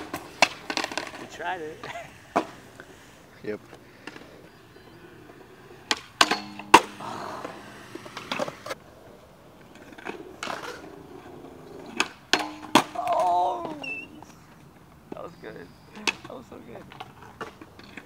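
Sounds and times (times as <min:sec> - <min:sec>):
skateboard clacks: 0:00.0 - 0:02.9, 0:05.3 - 0:08.8, 0:09.6 - 0:14.3
skateboard wheels rolling on concrete: 0:00.0 - 0:18.0.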